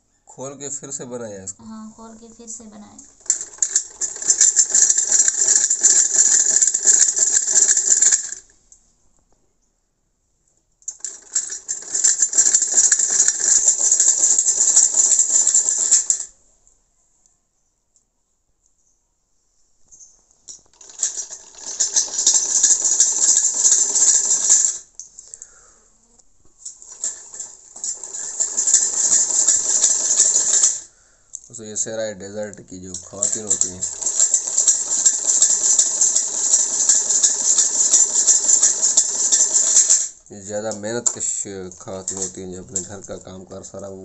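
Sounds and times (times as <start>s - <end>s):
hand-cranked sewing machine clattering: 3.1s - 8.4s, 10.9s - 16.3s, 20.7s - 24.9s, 26.8s - 30.9s, 31.8s - 44.0s.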